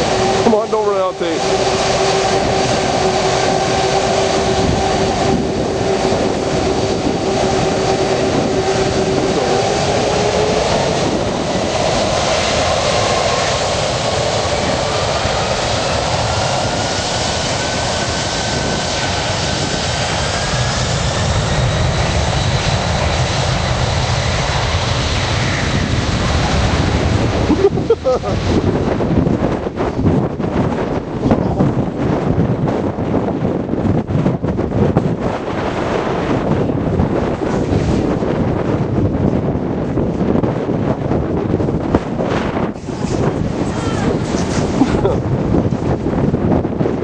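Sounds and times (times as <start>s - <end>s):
high rising whine: 0.0s - 28.7s
jet engines roaring: 0.0s - 47.0s.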